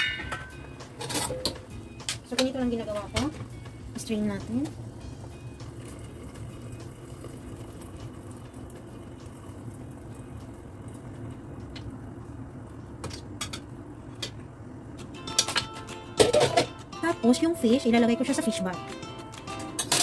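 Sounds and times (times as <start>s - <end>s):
liquid bubbling and trickling: 5.6s - 12.4s.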